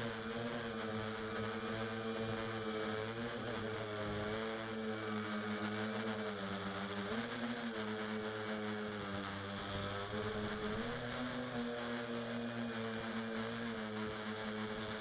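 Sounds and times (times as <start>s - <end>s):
drone motors buzzing: 7.9s - 15.0s.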